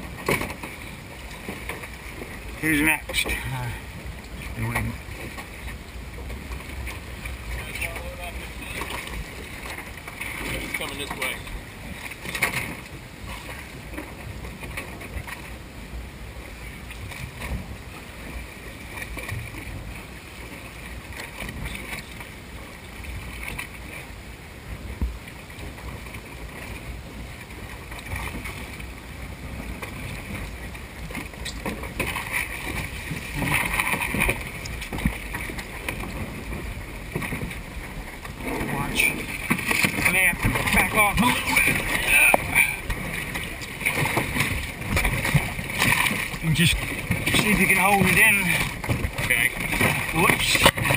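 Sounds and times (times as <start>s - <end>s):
kayaks knocking against boat: 0.0s - 15.6s, 27.5s - 50.9s
water noise: 0.0s - 50.9s
wind: 0.0s - 50.9s.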